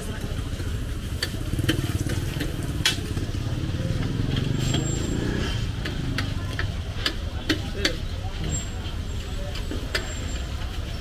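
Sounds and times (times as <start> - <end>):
street traffic: 0.0 - 11.0
motor engine running nearby: 0.1 - 7.6.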